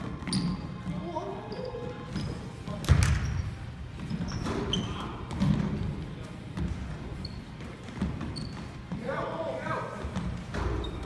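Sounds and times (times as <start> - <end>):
shoe squeaks: 0.0 - 5.6, 7.0 - 9.0, 10.5 - 11.0.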